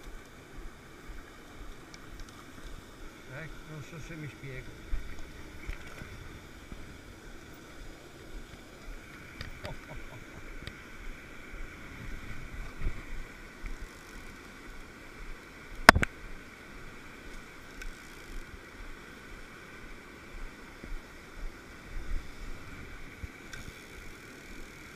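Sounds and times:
faint ticks: 0.0s - 3.1s, 4.9s - 10.0s, 10.6s - 10.8s, 12.1s - 16.4s, 17.2s - 22.6s, 23.2s - 24.9s
stream running over rocks: 0.0s - 24.9s.

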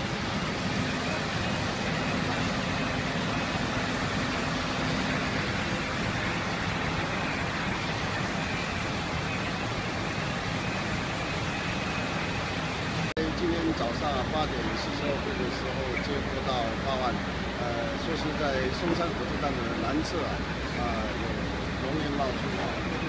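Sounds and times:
fire truck engines running: 0.0s - 23.0s
low engine hum: 0.0s - 23.0s
road traffic: 0.0s - 23.0s.

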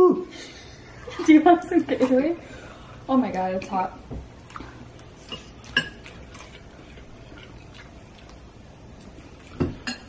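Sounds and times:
cutlery clinking on ceramic bowls: 5.2s - 6.0s, 9.6s - 10.0s.

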